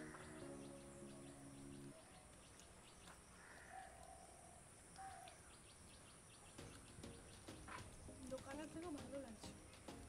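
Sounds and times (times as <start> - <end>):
soft background music: 0.0 - 2.0, 6.4 - 10.0
birds calling: 0.0 - 10.0.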